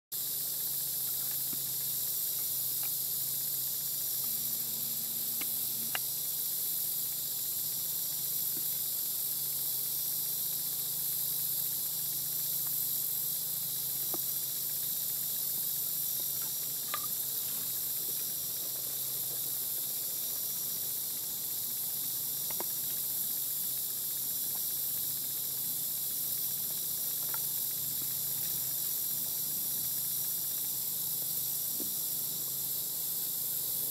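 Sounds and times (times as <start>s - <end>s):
insect chorus hissing: 0.1s - 33.9s
faint ticks: 5.2s - 6.2s, 12.4s - 13.0s, 13.8s - 15.6s, 21.5s - 32.1s.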